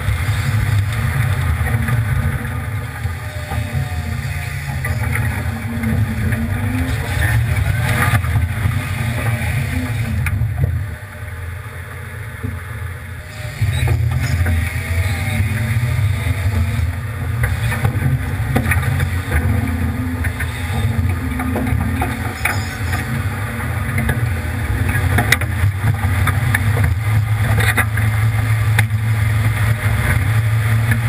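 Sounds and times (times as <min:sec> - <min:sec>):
truck engine running: 0:00.0 - 0:31.0
water splashing: 0:00.0 - 0:31.0.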